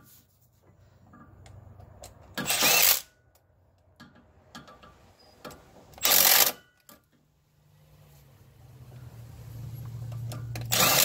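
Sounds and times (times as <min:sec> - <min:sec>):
ratchet wrench clicking: 0:02.4 - 0:03.1, 0:06.0 - 0:06.6, 0:10.1 - 0:11.0.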